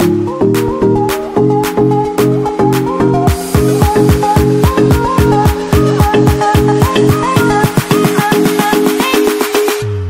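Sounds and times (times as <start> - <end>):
repeating synth melody: 0.0 - 9.0
fast kick drum beat: 3.3 - 9.8.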